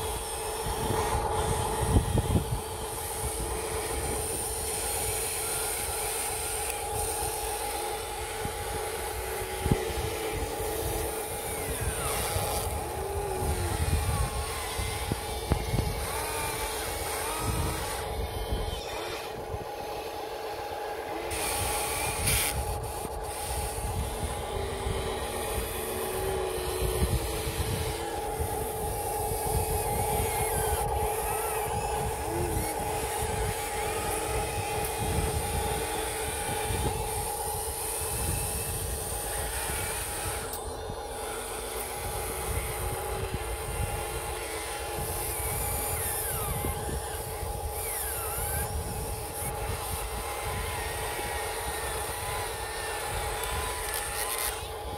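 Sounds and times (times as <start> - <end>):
electric motors whining: 0.0 - 54.9.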